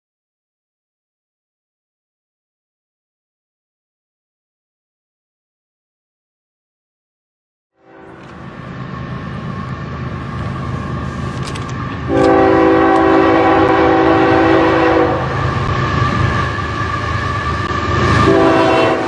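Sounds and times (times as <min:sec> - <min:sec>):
locomotive air horn blast: 0:07.8 - 0:08.5, 0:12.0 - 0:16.4, 0:18.1 - 0:19.0
diesel locomotive rumbling: 0:07.8 - 0:19.0.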